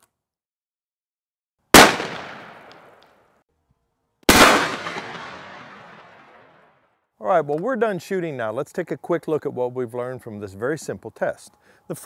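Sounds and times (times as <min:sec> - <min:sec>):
shotgun shots: 0:01.8 - 0:03.0, 0:04.3 - 0:06.6.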